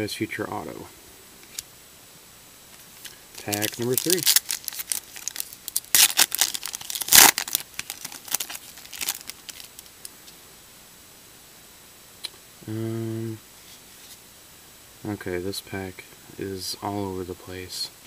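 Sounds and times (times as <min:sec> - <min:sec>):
foil wrapper tearing and crinkling: 0:02.8 - 0:10.0.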